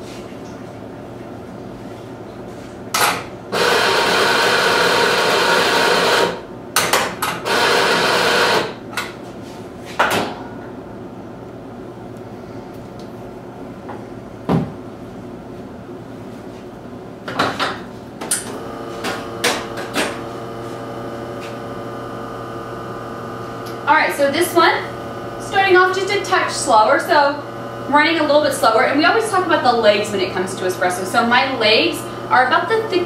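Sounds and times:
espresso grinder grinding coffee: 0:03.6 - 0:06.3, 0:18.5 - 0:33.0.

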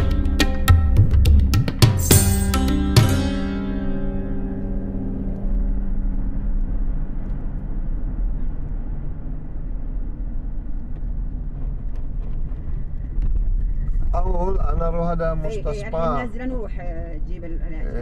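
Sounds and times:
music: 0:00.0 - 0:07.9
car driving low rumble: 0:00.0 - 0:18.0.

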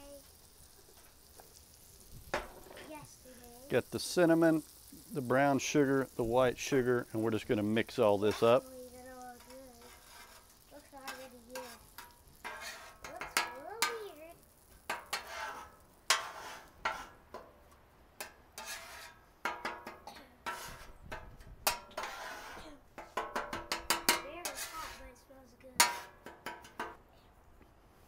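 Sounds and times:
faint sizzle: 0:00.0 - 0:26.2
metal spatulas scraping griddle: 0:06.6 - 0:08.7, 0:09.4 - 0:14.1, 0:14.8 - 0:17.6, 0:18.2 - 0:27.0.

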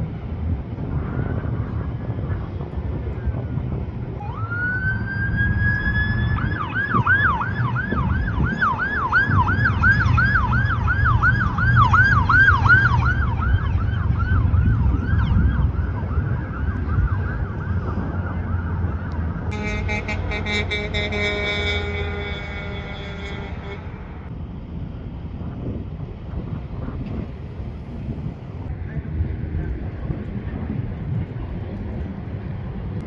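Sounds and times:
low traffic rumble: 0:00.0 - 0:33.0
police car siren wailing and yelping: 0:04.1 - 0:19.5.

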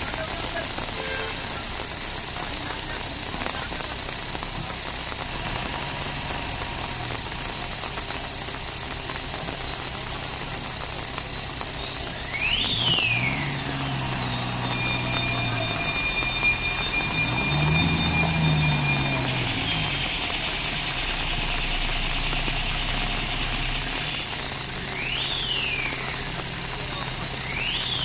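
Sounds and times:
lorry diesel engine running: 0:00.0 - 0:28.0
rain hissing: 0:00.0 - 0:28.0
rising and falling whistle: 0:12.2 - 0:20.2, 0:24.9 - 0:26.1, 0:27.4 - 0:28.0.

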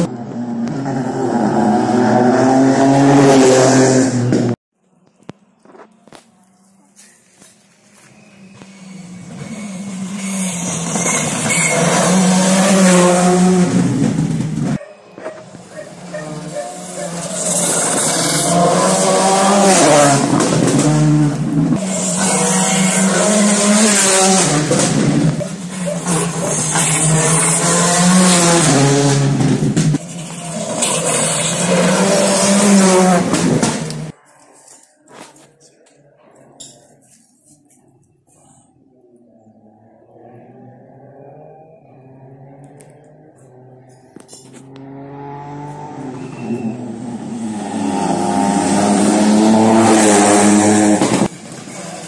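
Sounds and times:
rally car engine at high revs: 0:00.0 - 0:04.6, 0:15.9 - 0:34.1, 0:39.8 - 0:51.7
rally car engine approaching: 0:39.2 - 0:52.0.

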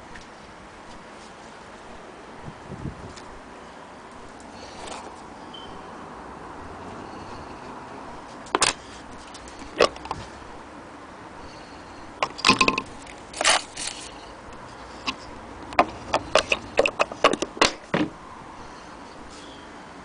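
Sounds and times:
metal attachments clicking and rattling: 0:12.2 - 0:14.2, 0:15.0 - 0:17.8.

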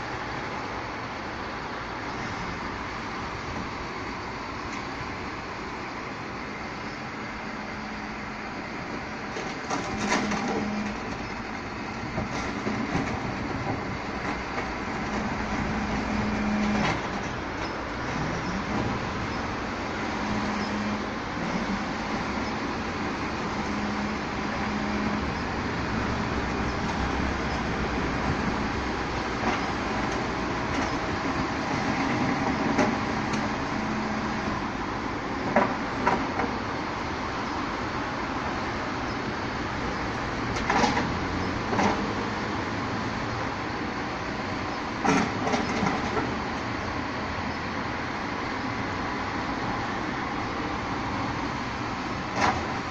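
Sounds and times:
garbage truck running: 0:00.0 - 0:52.9
clanks of waste in hopper: 0:09.4 - 0:11.3, 0:40.6 - 0:42.2, 0:45.0 - 0:46.4.

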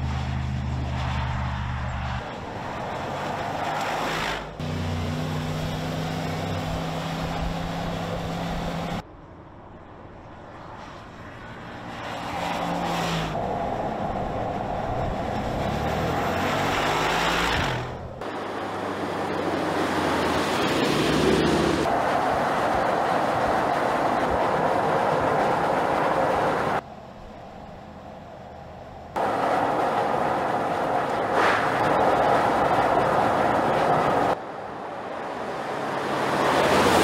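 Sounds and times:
car engine humming: 0:00.0 - 0:09.0, 0:12.7 - 0:35.4
tyre and road noise: 0:00.0 - 0:37.0.

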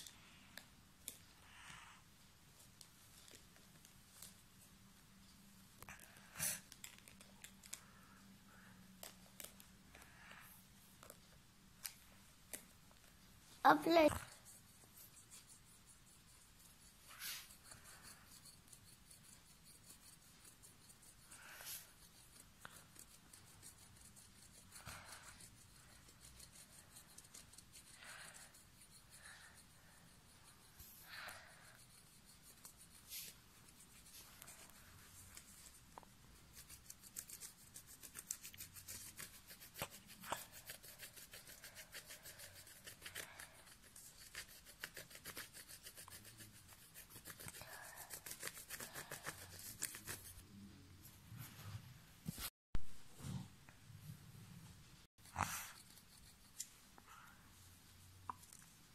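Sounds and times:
pencil scratching on paper: 0:13.7 - 0:50.4, 0:55.1 - 0:57.4.

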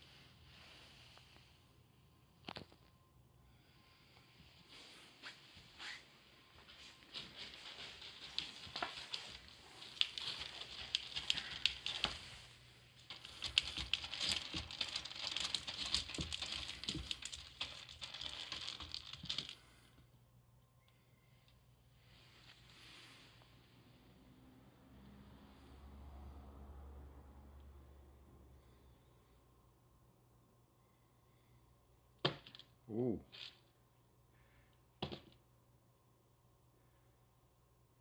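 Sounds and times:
cat scratching in pellet litter: 0:07.0 - 0:19.6.

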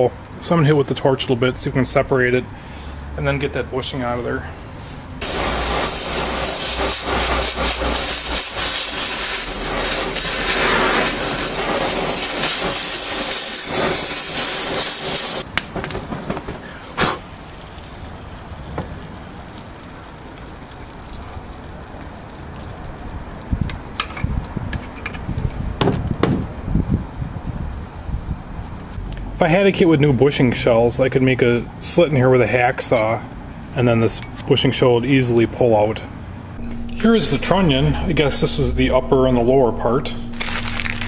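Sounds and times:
cutting torch hissing: 0:05.2 - 0:15.5, 0:16.5 - 0:22.8
knock: 0:25.8 - 0:26.4.

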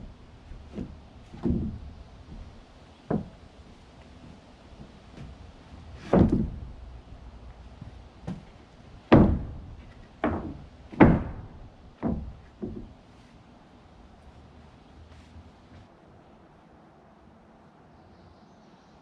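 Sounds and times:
wooden boards knocking and thudding: 0:00.0 - 0:13.0.

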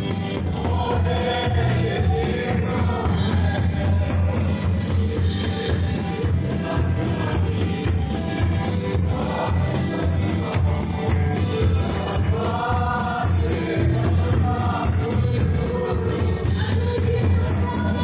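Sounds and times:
congregation singing: 0:00.0 - 0:18.0
gospel music with bass beat: 0:00.0 - 0:18.0.

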